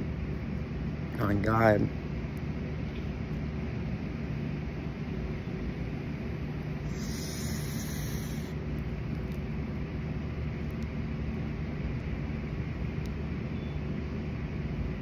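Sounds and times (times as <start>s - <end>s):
low rumble and hum: 0.0s - 15.0s
breath hissing through a joint: 6.8s - 8.6s.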